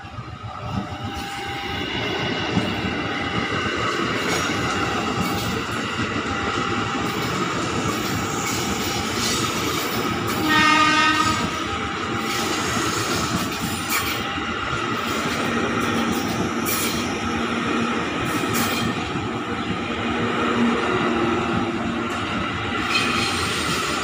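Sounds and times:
electric train passing: 0.0s - 24.0s
train horn blast: 10.3s - 11.8s.

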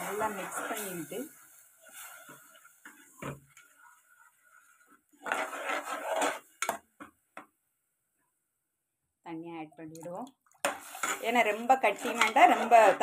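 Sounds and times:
spoon scraping pot: 0.0s - 7.1s, 10.6s - 13.0s.

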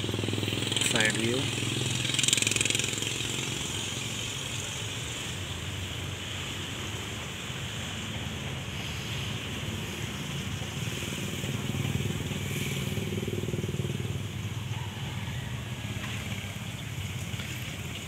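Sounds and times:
diesel engine idling: 0.0s - 6.4s.

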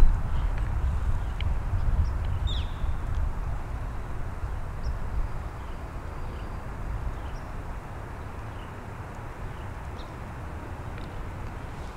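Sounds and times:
low rumble and hiss: 0.0s - 11.9s
faint bird chirps: 2.0s - 3.0s.

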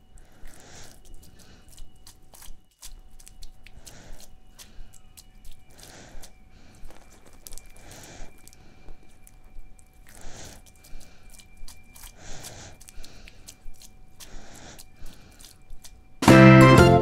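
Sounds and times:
person breathing heavily: 0.0s - 1.9s, 3.7s - 15.9s
faint high whine: 0.0s - 17.0s
music with plucked strings and keyboard: 16.2s - 17.0s.

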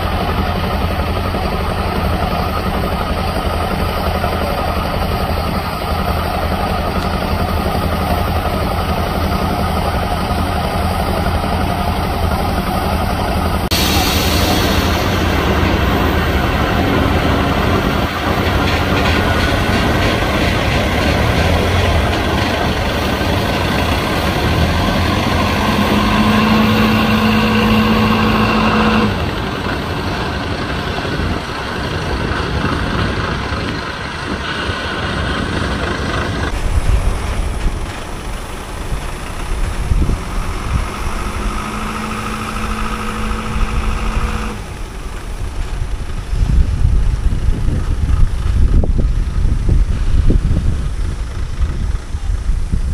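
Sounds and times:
truck diesel engine under load: 0.0s - 52.9s
steady held tone: 36.5s - 46.7s.

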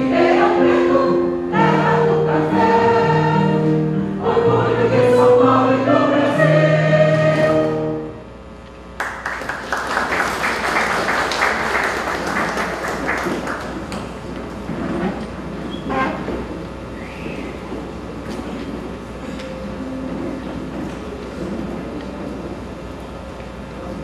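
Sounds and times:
choir singing held chord: 0.0s - 8.2s
audience applause: 9.0s - 14.3s.

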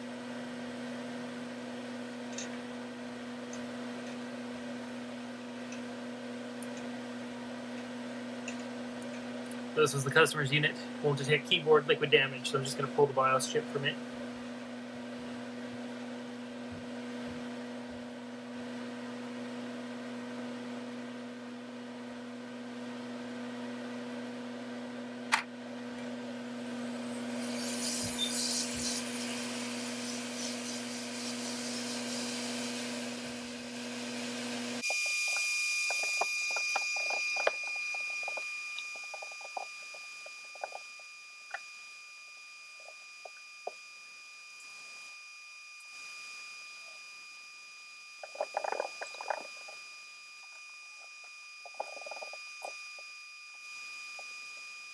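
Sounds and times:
steady electrical hum: 0.0s - 54.9s
hot-air nozzle whining: 26.4s - 54.9s
hiss and small crackles: 34.8s - 41.8s, 48.1s - 54.8s.

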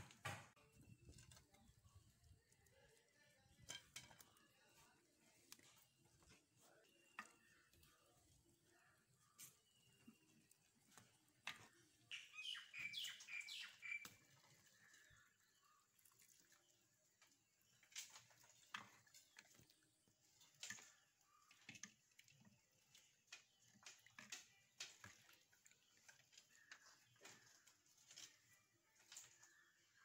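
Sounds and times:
faint bird chirps: 0.6s - 17.0s, 22.9s - 30.0s.

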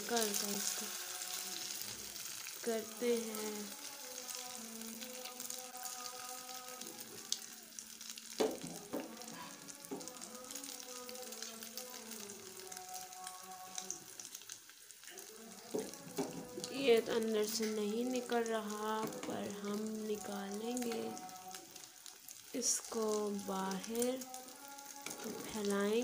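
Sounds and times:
egg sizzling in frying pan: 0.0s - 26.0s.

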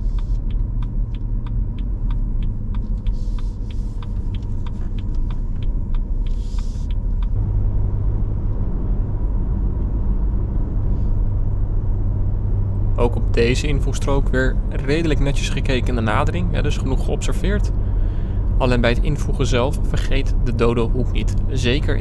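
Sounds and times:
turn signal ticking: 0.0s - 7.4s
engine and road rumble: 0.0s - 22.0s.

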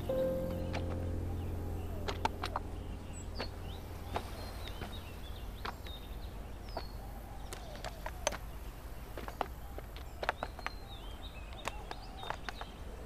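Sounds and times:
low outdoor rumble: 0.0s - 7.5s
small birds chirping: 0.0s - 13.0s
footsteps on grass and stones: 3.4s - 6.1s, 6.7s - 10.8s.

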